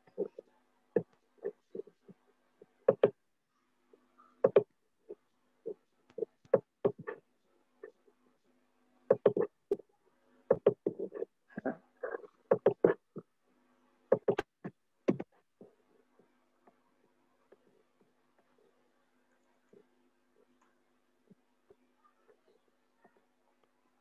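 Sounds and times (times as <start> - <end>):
faint steady hum: 0.0 - 24.0
computer mouse clicks: 2.9 - 3.2, 4.4 - 4.7.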